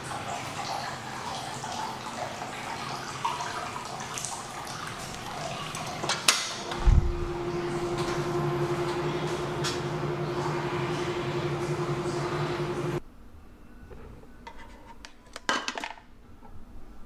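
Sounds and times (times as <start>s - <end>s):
water trickling: 0.0s - 13.0s
steady hum: 4.7s - 13.0s
glass door thump: 6.8s - 7.3s.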